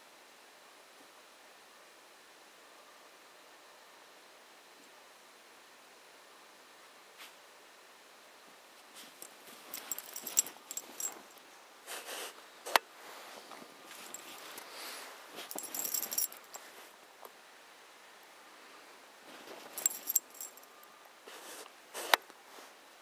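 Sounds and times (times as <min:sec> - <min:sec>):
harness and leash jingling: 0:09.0 - 0:11.4, 0:13.9 - 0:16.7, 0:19.4 - 0:20.8
dog snuffling in snow: 0:11.8 - 0:12.4, 0:13.0 - 0:15.6, 0:21.3 - 0:22.8.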